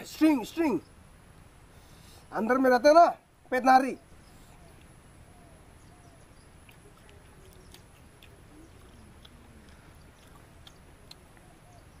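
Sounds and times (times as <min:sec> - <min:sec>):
wet mouth clicks chewing: 0:06.5 - 0:12.0.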